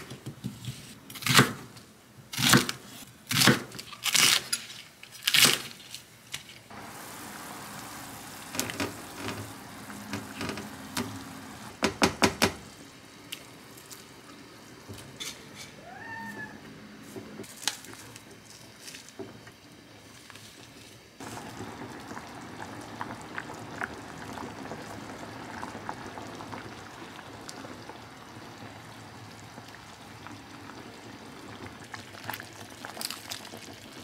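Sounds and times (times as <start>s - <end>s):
stew simmering with a hiss: 6.7s - 11.8s, 17.8s - 34.0s
cat meowing: 15.8s - 16.6s.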